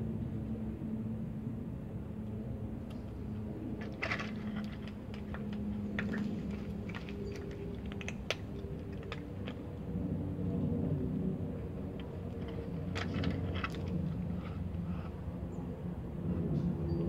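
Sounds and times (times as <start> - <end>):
cats crunching kibble: 3.8 - 9.9, 11.8 - 15.1.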